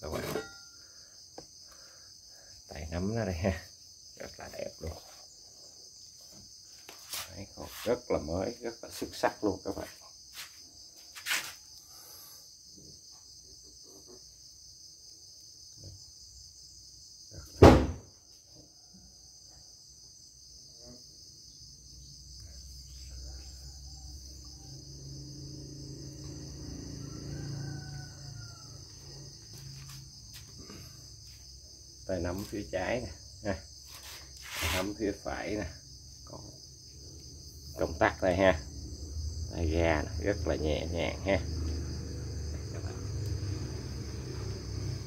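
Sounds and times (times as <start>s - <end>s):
loud knock: 17.6s - 18.1s.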